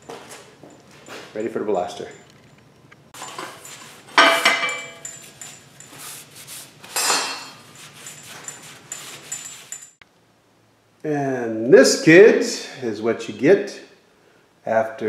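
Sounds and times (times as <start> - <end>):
metal parts clanking: 3.2 - 5.6.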